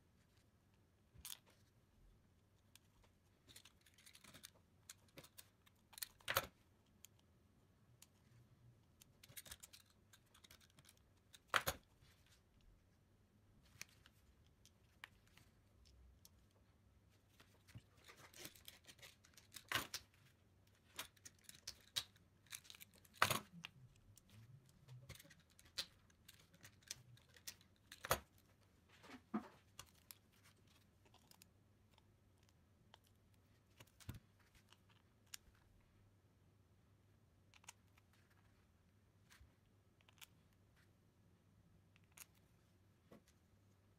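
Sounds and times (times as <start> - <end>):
plastic parts clicking and tapping: 2.6 - 7.3, 8.0 - 11.9, 17.3 - 35.6.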